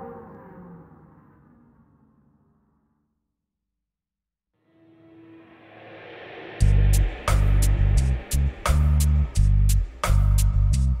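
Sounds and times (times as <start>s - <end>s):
background music: 6.6s - 11.0s.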